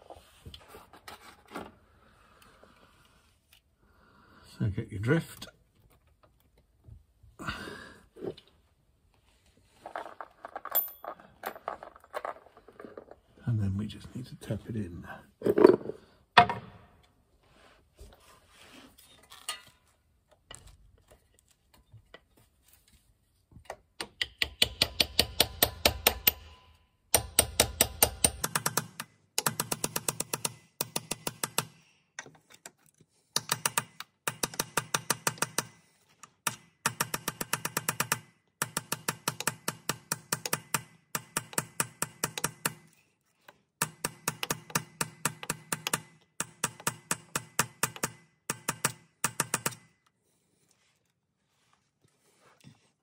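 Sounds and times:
small hammer tapping on metal: 24.0s - 32.4s, 36.5s - 42.8s, 43.8s - 49.8s.

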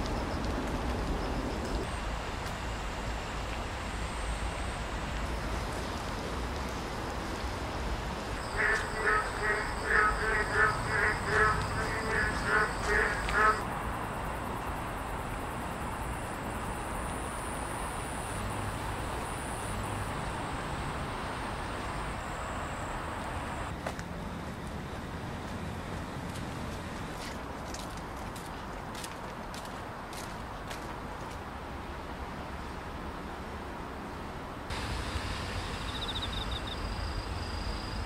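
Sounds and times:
rain hissing: 0.0s - 15.2s, 15.9s - 23.7s, 34.7s - 38.0s
frog croaking: 8.4s - 13.7s.

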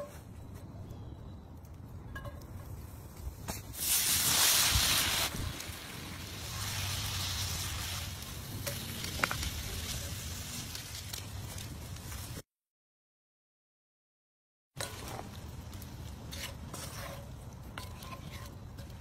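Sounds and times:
steady sizzle: 3.4s - 12.4s
liquid hissing in hot skillet: 3.7s - 8.4s.

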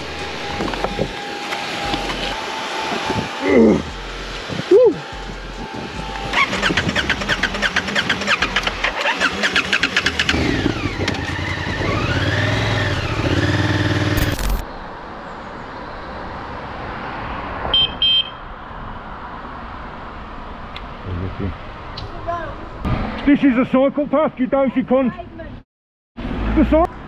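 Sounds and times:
motorcycle engine revving: 5.0s - 14.6s.

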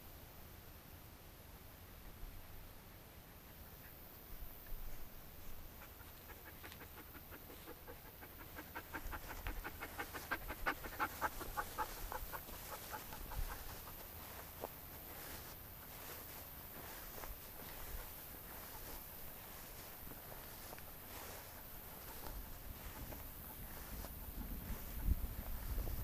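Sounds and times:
animal panting rapidly: 5.4s - 14.8s, 17.0s - 26.0s.

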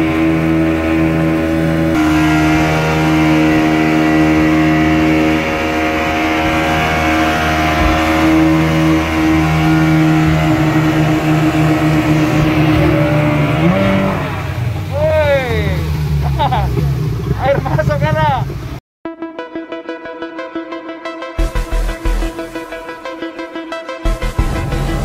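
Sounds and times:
outboard motor running: 0.0s - 18.8s
wake and waves splashing: 0.0s - 18.8s.

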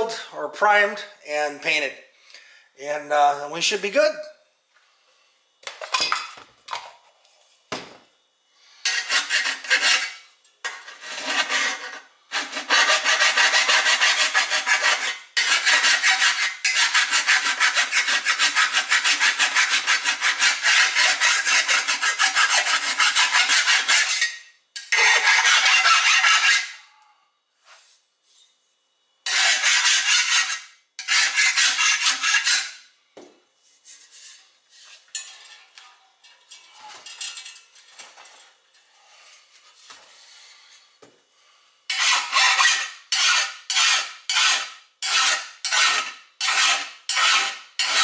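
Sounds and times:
hand file rasping on steel: 8.8s - 26.9s, 29.3s - 32.8s, 41.9s - 48.0s.

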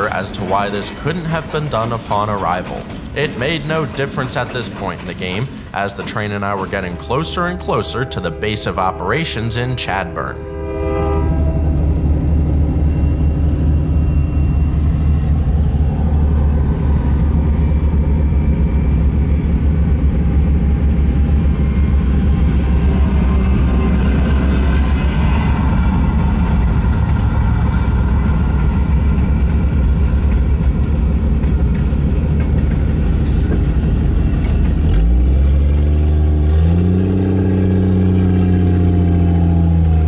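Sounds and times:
car engine and tyres rumbling: 11.4s - 40.0s.

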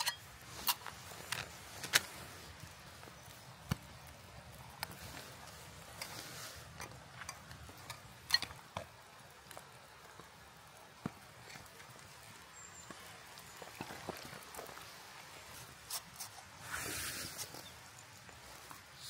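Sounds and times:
water trickling into metal pot: 0.0s - 1.0s, 5.8s - 10.2s.

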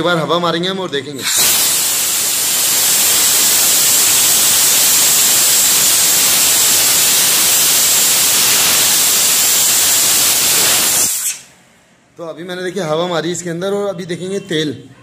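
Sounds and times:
compressed air blow gun hissing: 1.2s - 11.5s.

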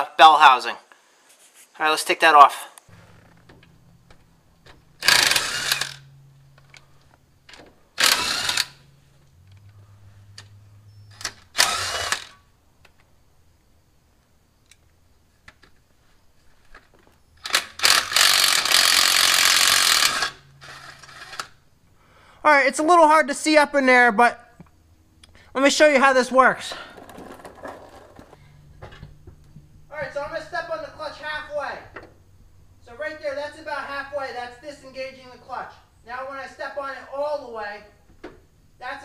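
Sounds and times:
cordless drill spinning: 5.0s - 6.1s, 8.0s - 8.9s, 11.4s - 12.4s, 17.5s - 21.5s.

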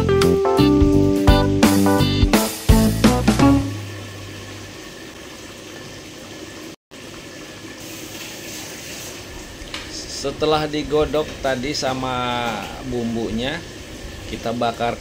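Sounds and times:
guitar music: 0.0s - 3.9s.

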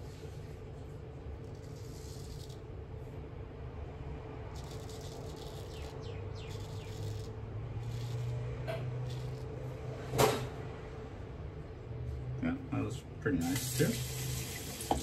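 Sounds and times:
razor scraping stubble: 1.3s - 2.8s, 4.4s - 10.3s.

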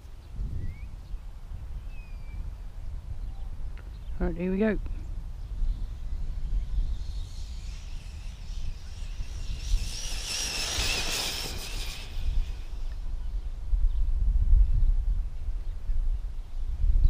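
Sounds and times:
wind rumble on microphone: 0.0s - 17.0s
electric motor whining: 6.5s - 13.1s.

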